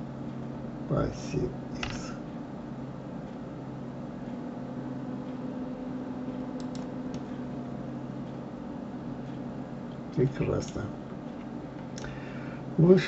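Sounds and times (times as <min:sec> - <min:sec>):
low hum with hiss: 0:00.0 - 0:13.0
computer mouse clicks: 0:06.6 - 0:07.3.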